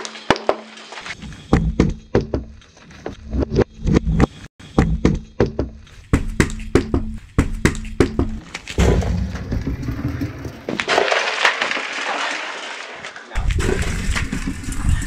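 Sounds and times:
tyre crushing drink can: 0:07.7 - 0:15.0.

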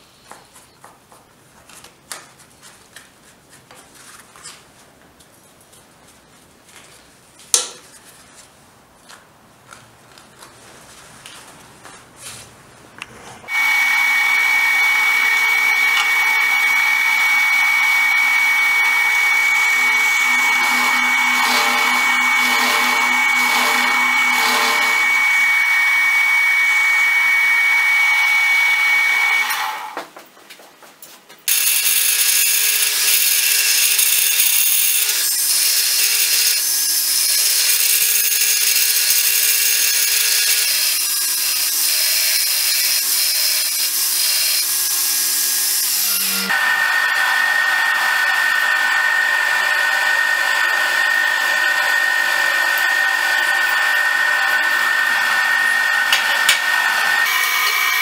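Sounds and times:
belt grinder grinding steel: 0:13.5 - 0:30.0, 0:31.5 - 0:58.0
machine spindle cutter whine: 0:13.5 - 0:30.0, 0:31.5 - 0:58.0.

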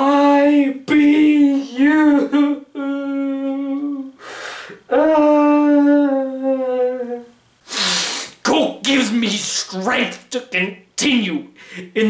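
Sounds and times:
man humming: 0:01.0 - 0:07.4
loud breath: 0:04.2 - 0:04.9, 0:07.6 - 0:08.4, 0:11.6 - 0:11.9.

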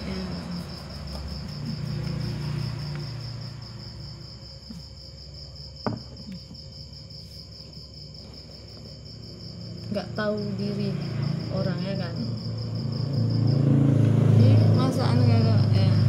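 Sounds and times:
cricket chirping: 0:00.0 - 0:16.0
short knock: 0:05.8 - 0:06.3.

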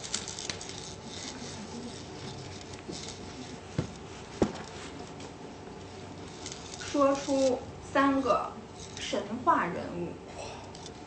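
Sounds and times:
faint rubbing and handling noise: 0:00.0 - 0:09.5.

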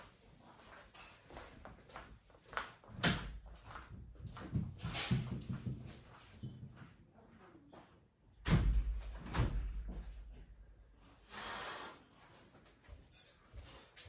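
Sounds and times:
short hiss: 0:11.2 - 0:12.1.

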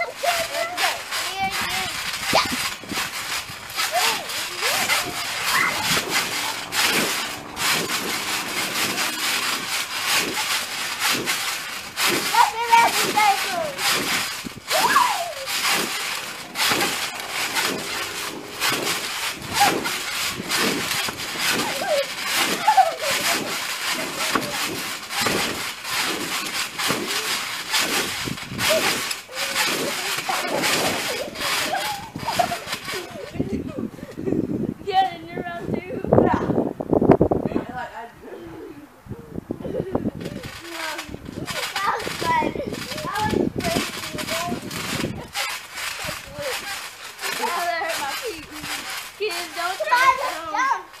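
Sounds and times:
rustling on trampoline mat: 0:00.0 - 0:38.8, 0:39.6 - 0:51.0.

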